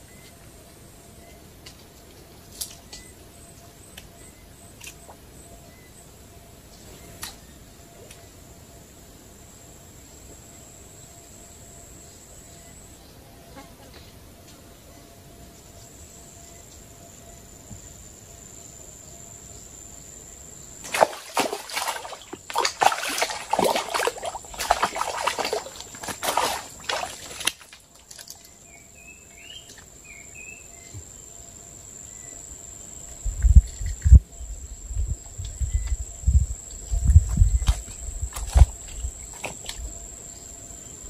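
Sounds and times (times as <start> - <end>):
high insect drone: 0.0 - 41.0
water splashing and sloshing: 20.8 - 28.6, 36.9 - 39.9
bird chirps: 28.4 - 31.0.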